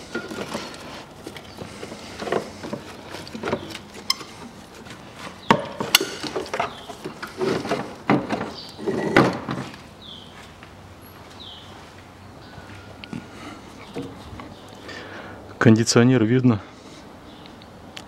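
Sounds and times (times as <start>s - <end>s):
metal and plastic knocking and scraping: 0.0s - 9.8s.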